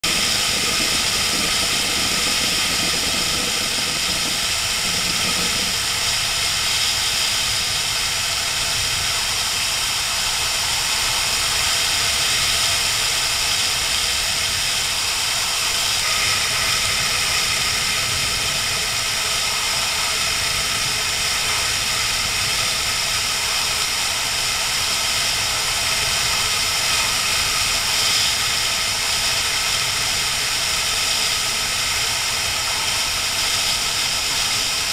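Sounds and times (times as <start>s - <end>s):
motorcycle engine: 0.0s - 6.0s
rushing wind noise: 0.0s - 34.9s.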